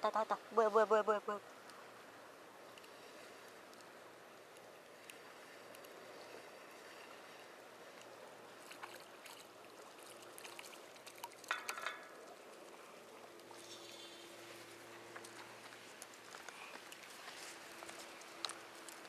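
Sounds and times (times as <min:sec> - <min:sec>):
seawater lapping and trickling: 0:00.0 - 0:19.0
splashing: 0:06.7 - 0:19.0.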